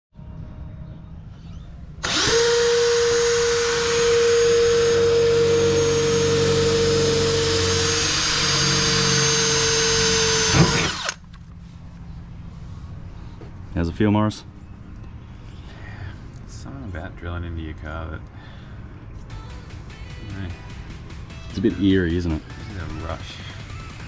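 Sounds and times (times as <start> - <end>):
cordless drill drilling into metal: 2.0 - 11.2.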